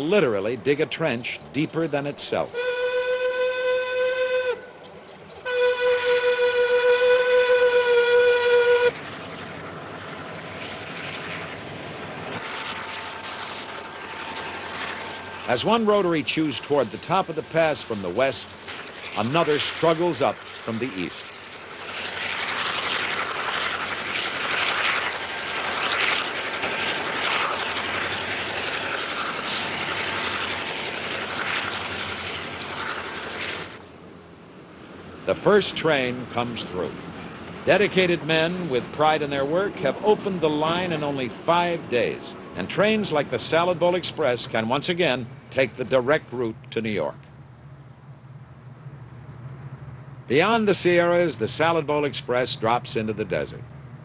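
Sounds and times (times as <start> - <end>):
locomotive horn blasts: 2.5 - 4.8, 5.4 - 9.0
steady rushing noise: 4.5 - 54.0.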